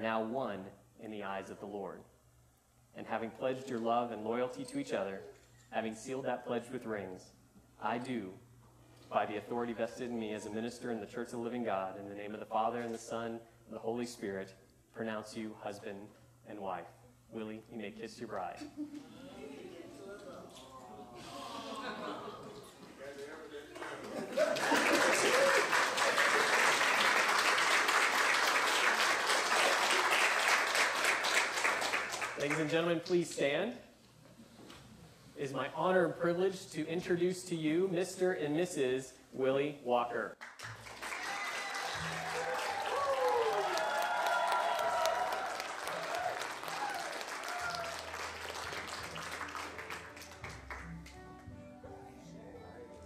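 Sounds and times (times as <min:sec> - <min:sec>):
crowd applauding: 0:23.6 - 0:32.7, 0:40.4 - 0:51.2.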